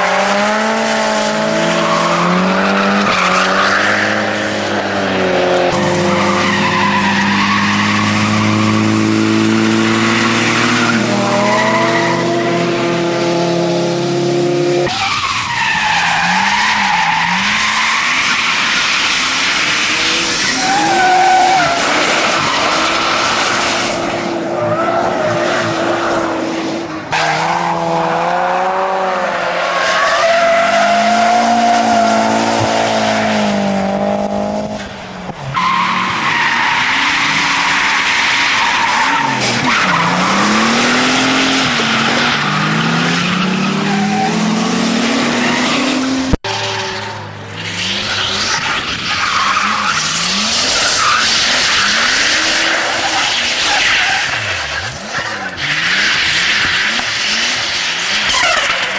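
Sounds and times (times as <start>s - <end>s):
car engines revving: 0.0s - 58.9s
tyre squeal: 14.9s - 23.9s, 45.5s - 58.9s.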